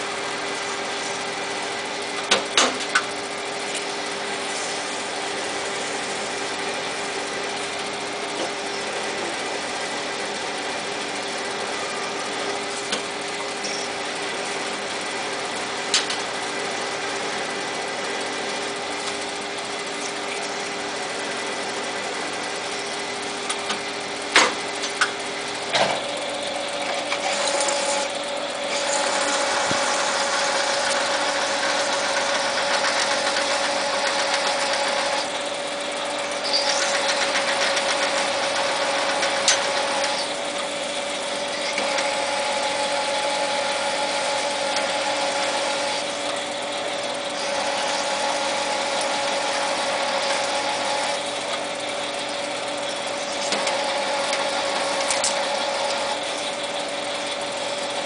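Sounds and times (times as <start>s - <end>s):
lathe drive whine: 0.0s - 58.0s
lathe cutting steel: 27.1s - 35.4s, 36.2s - 57.8s.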